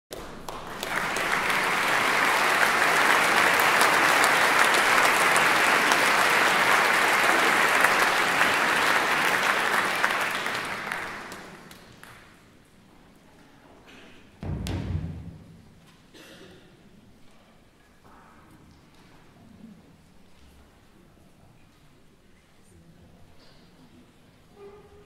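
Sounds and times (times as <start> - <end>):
audience applauding: 0.1 - 12.2.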